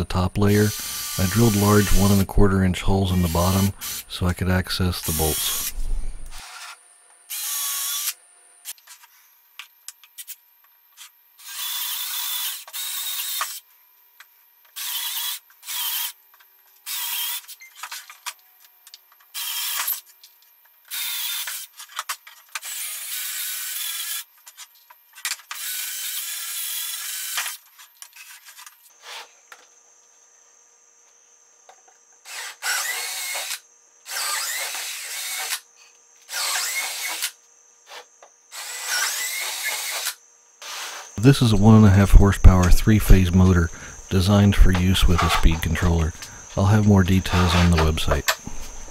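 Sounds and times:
cordless drill boring into plywood: 0:00.5 - 0:02.2, 0:03.2 - 0:04.2, 0:05.0 - 0:08.2, 0:11.4 - 0:13.6, 0:14.8 - 0:16.2, 0:16.9 - 0:17.5, 0:20.9 - 0:21.7, 0:22.6 - 0:24.2, 0:25.5 - 0:27.6, 0:32.2 - 0:35.6, 0:36.3 - 0:37.4, 0:38.5 - 0:41.2.

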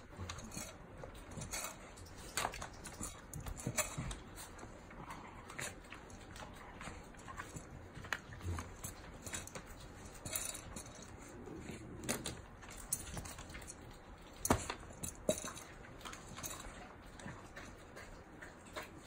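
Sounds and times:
kibble clinking on steel bowl: 0:00.0 - 0:11.4, 0:12.0 - 0:18.2
dog crunching kibble: 0:00.0 - 0:19.0.

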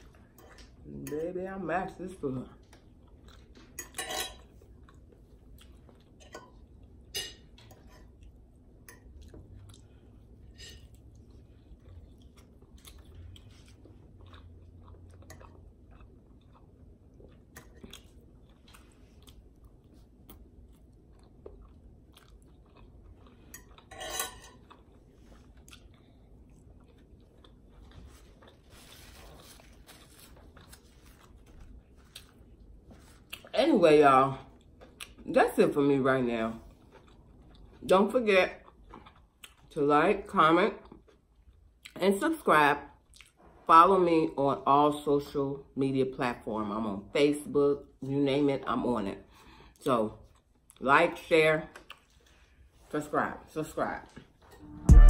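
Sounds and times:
chewing and mouth sounds: 0:04.6 - 0:07.0, 0:08.1 - 0:23.9, 0:24.5 - 0:33.5, 0:34.5 - 0:35.3, 0:36.6 - 0:37.9, 0:38.6 - 0:39.7, 0:43.0 - 0:43.4, 0:51.7 - 0:52.4.

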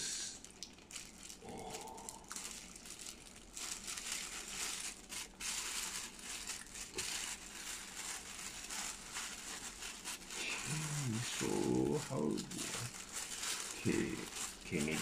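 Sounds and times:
tissue paper rustling and crinkling: 0:00.9 - 0:15.0.

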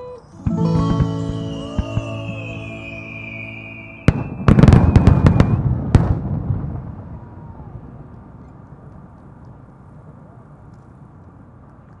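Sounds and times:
music chord: 0:00.0 - 0:04.7
firework shells bursting: 0:00.4 - 0:06.3
firework crackling: 0:00.4 - 0:07.2.

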